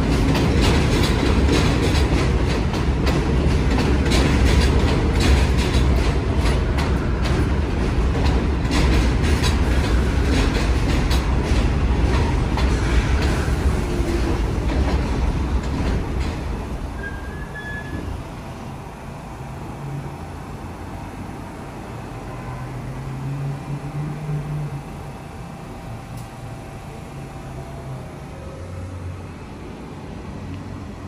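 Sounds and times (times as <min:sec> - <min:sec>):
subway wheels clicking over rail joints: 0:00.0 - 0:18.8
low train rumble: 0:00.0 - 0:31.0.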